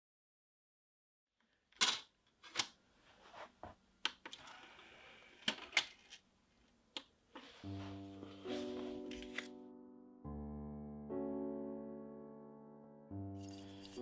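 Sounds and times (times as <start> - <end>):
piano music: 7.4 - 14.0.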